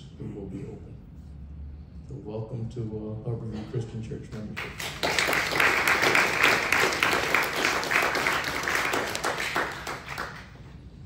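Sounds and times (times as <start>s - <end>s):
congregation applauding: 4.6s - 10.8s.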